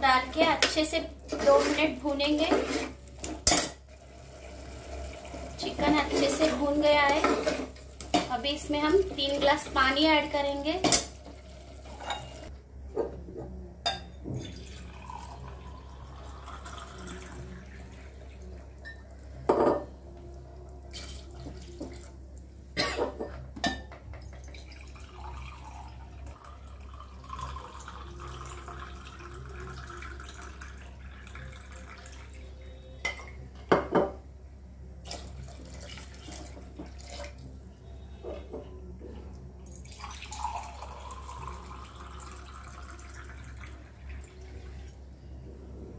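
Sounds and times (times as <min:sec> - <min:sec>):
water pouring into pot: 0:14.4 - 0:18.8, 0:24.5 - 0:32.5, 0:35.1 - 0:37.4, 0:39.7 - 0:44.9.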